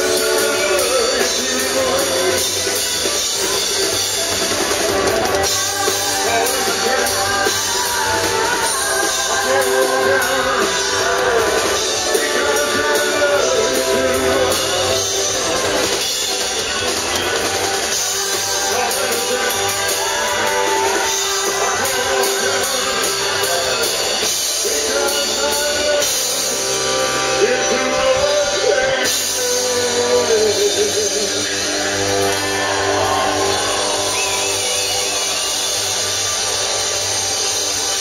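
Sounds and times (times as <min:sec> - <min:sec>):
man singing into microphone: 0:00.0 - 0:02.8, 0:05.4 - 0:16.0, 0:17.9 - 0:32.1
live band playing: 0:00.0 - 0:38.0.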